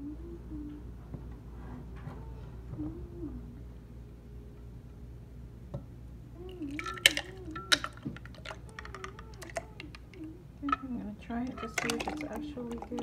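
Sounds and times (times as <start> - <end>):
liquid splashing and glugging: 6.5 - 10.8, 11.5 - 13.0
ice cubes clinking against glass: 6.6 - 10.9, 11.5 - 13.0.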